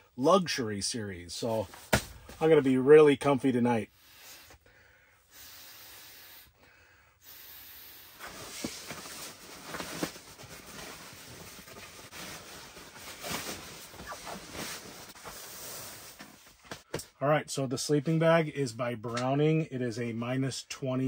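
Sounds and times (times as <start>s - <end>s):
sleeping bag rustling: 8.2s - 16.6s.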